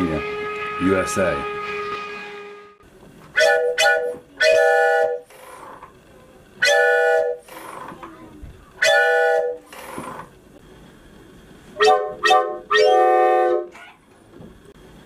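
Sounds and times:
train whistle chord blasts: 0.0 - 5.3, 6.6 - 7.5, 8.8 - 9.7, 11.8 - 13.8.

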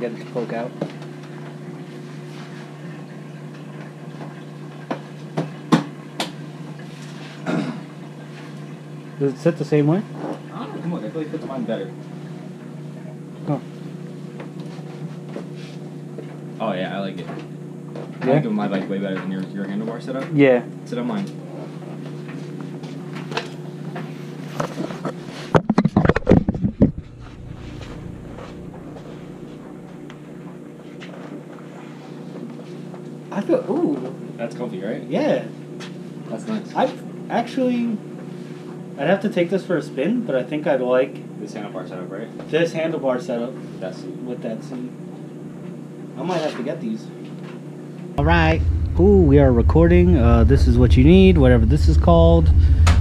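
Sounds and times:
steady low hum: 6.1 - 31.0, 48.1 - 53.0
low hum: 25.8 - 30.3, 48.2 - 53.0.

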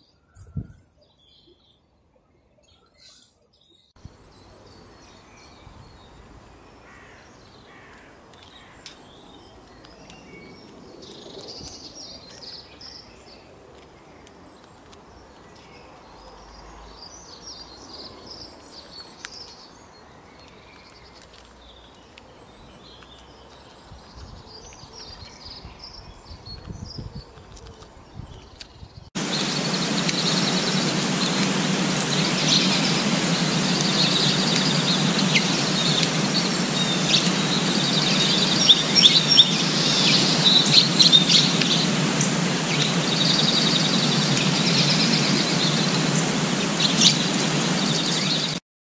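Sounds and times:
small birds chirping: 2.6 - 48.6
loud steady noise with low hum: 29.2 - 48.6.

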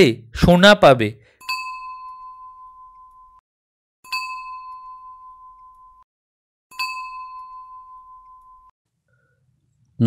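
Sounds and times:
bell-like ding: 1.3 - 3.4, 4.1 - 6.1, 6.7 - 8.8.

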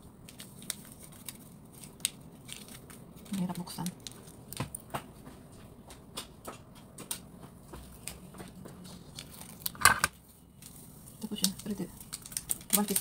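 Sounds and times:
packet crinkling: 0.0 - 4.9, 8.9 - 13.0.

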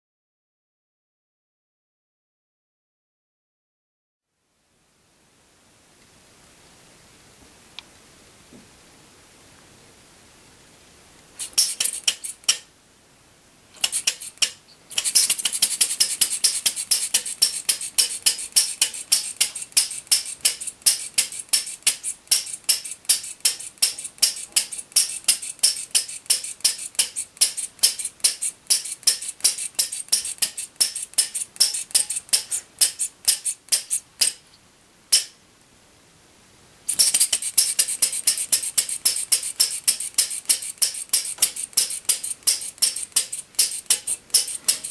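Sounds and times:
engine firing with metallic pops: 11.4 - 12.6, 13.8 - 34.4, 36.9 - 44.9.

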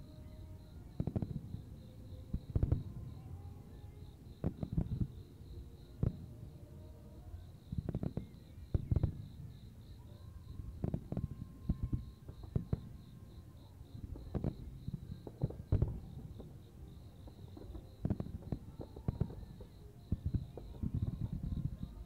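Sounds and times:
crickets chirping: 0.0 - 22.0
fireworks booming and crackling: 0.9 - 3.3, 4.4 - 5.2, 6.0 - 6.4, 7.7 - 9.5, 10.6 - 13.0, 14.0 - 22.0.

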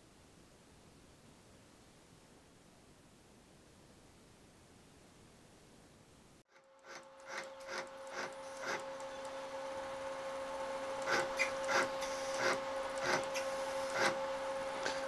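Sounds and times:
router motors humming: 6.5 - 15.0.

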